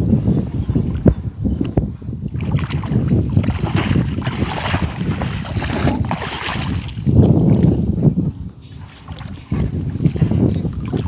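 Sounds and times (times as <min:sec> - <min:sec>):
water sloshing and splashing: 0:02.3 - 0:07.8, 0:08.6 - 0:11.0.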